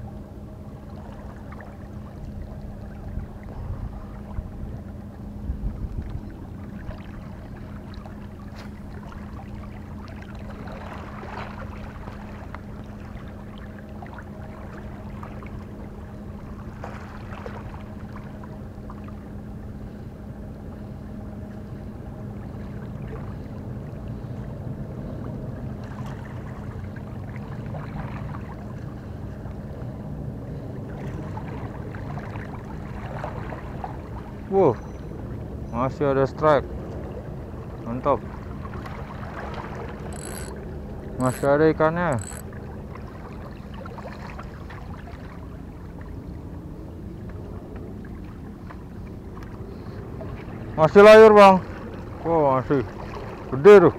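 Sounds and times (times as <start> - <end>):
low engine hum: 0.0 - 53.9
soft water splashes: 0.0 - 53.9.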